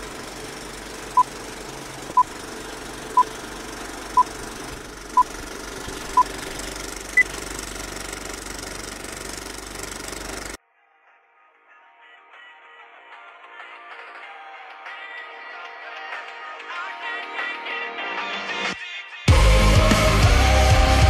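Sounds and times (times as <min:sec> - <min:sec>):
film projector clattering: 0:00.0 - 0:10.6.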